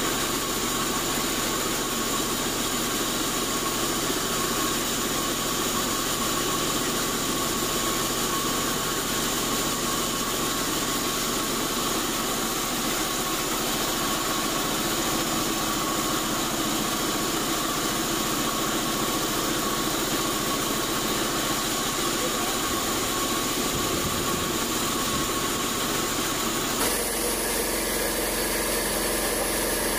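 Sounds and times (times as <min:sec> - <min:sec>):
steady machine hum: 0:05.3 - 0:29.9
band saw whining: 0:26.8 - 0:29.9.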